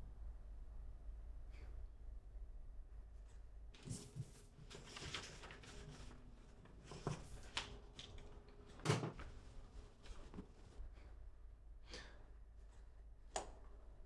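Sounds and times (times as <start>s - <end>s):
paper rustling: 3.8s - 10.8s.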